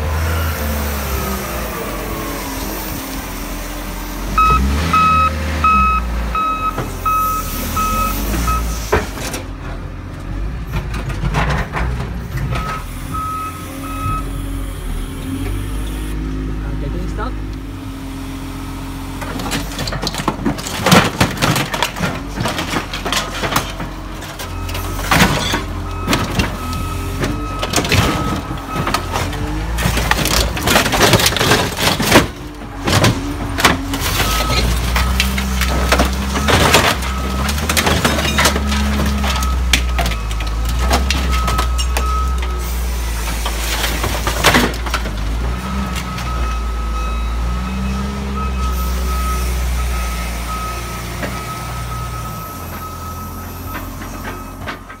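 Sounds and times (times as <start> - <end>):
diesel engine running under load: 0.0 - 55.0
metal and glass crunching: 19.3 - 42.5.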